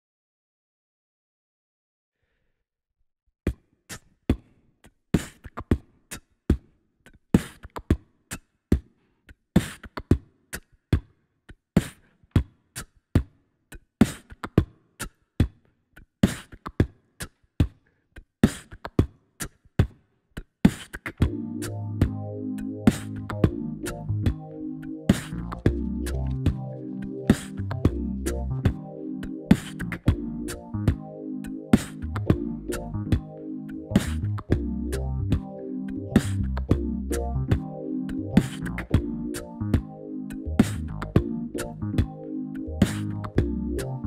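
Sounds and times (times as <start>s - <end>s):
human beatbox: 5.2s - 21.8s, 22.9s - 24.4s, 25.1s - 31.0s, 31.8s - 35.5s, 36.2s - 37.7s, 38.4s - 39.9s, 40.6s - 42.2s, 42.8s - 43.5s
synthesizer chords with deep bass: 21.2s - 44.0s.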